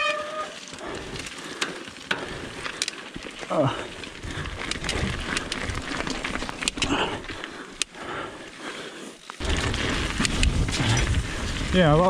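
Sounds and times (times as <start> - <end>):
bike tyres crunching on gravel: 0.0 - 12.0
stones and bike rattling: 0.0 - 12.0
wind rumble on microphone: 9.4 - 12.0.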